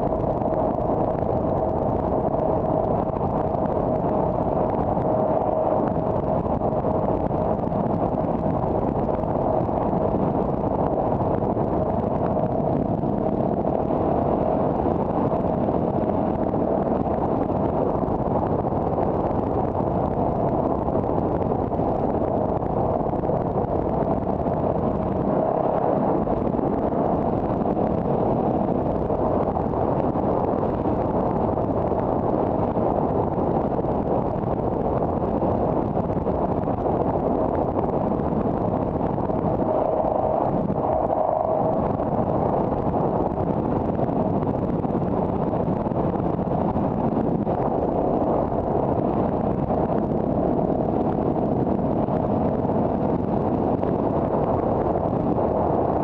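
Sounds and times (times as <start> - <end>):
steady mid-pitched hum: 0.0 - 56.0
car driving on road: 38.6 - 43.3.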